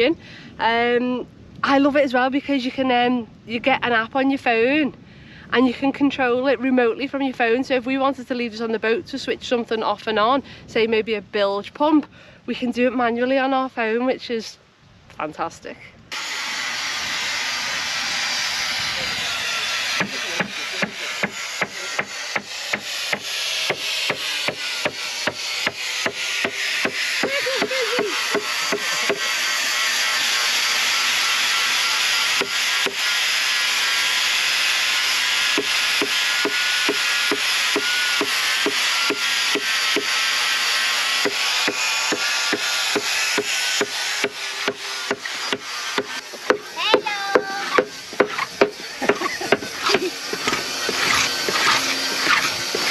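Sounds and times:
steady rasping noise: 0:16.1 - 0:52.9
hand scraping wooden hull: 0:45.1 - 0:52.9.

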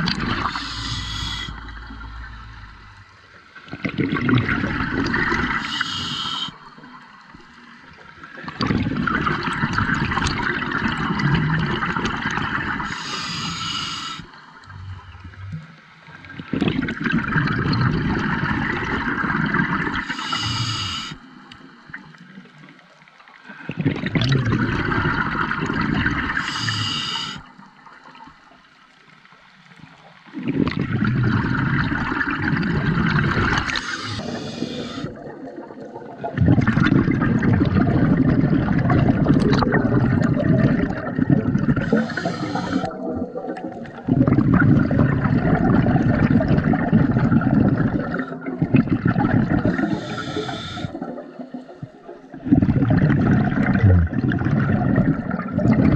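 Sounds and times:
gurgling exhaled bubbles: 0:00.0 - 0:06.8, 0:08.2 - 0:21.2, 0:23.5 - 0:27.4, 0:30.2 - 0:55.9
regulator inhalation hiss: 0:00.4 - 0:01.7, 0:05.6 - 0:06.6, 0:12.9 - 0:14.3, 0:20.1 - 0:21.2, 0:26.4 - 0:27.4, 0:33.8 - 0:35.1, 0:41.9 - 0:42.9, 0:49.8 - 0:51.0.

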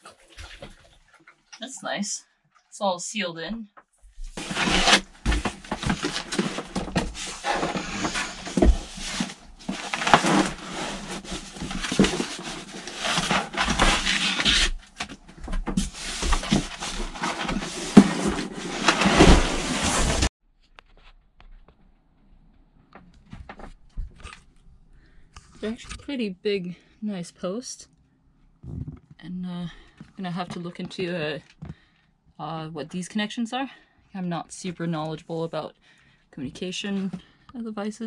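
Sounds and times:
cardboard and foam rustling: 0:04.1 - 0:20.3.

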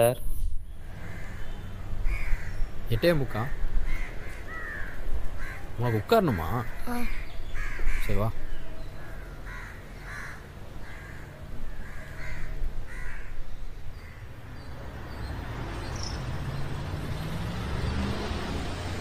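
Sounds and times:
crows cawing: 0:00.9 - 0:14.4.

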